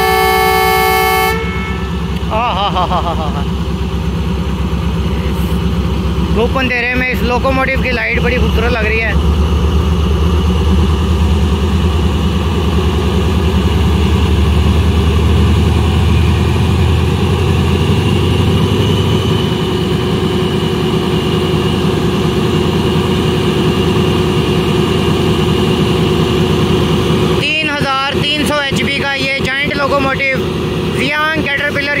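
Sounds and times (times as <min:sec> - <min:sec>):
high whine: 0:00.0 - 0:32.0
locomotive engine idling: 0:00.0 - 0:32.0.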